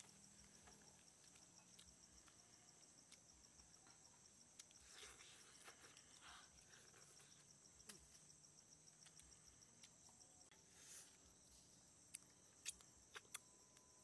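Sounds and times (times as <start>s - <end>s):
insect chirring: 0.0s - 14.0s
person chewing: 4.5s - 7.4s, 12.1s - 13.5s.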